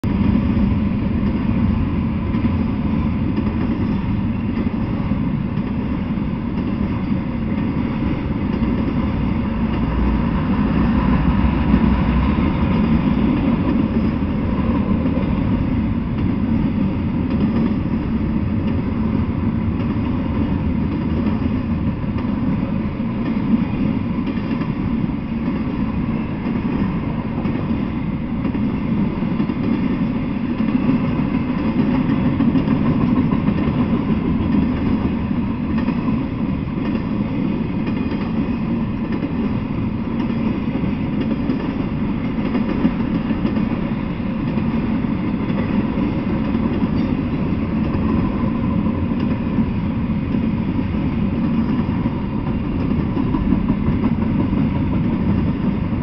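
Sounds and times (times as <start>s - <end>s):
train wheels rolling on rails: 0.0s - 56.0s.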